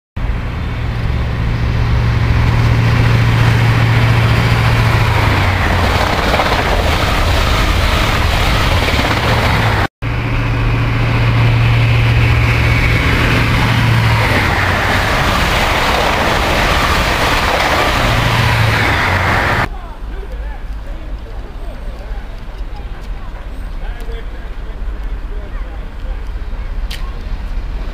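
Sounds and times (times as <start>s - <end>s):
diesel train engine drone: 0.2s - 27.9s
train wheel and air rush: 0.4s - 19.7s.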